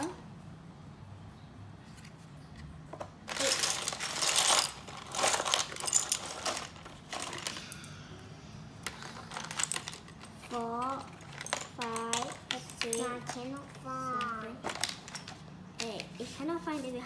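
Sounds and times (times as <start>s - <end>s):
plastic building blocks clattering: 3.0s - 7.8s, 8.8s - 16.1s.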